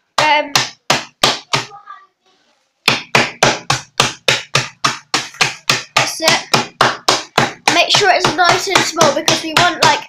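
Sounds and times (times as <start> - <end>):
mallet pounding bag of ice: 2.9 - 10.0.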